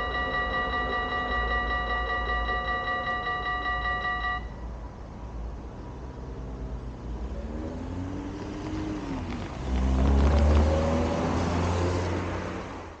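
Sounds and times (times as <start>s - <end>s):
car engine accelerating: 7.0s - 13.0s.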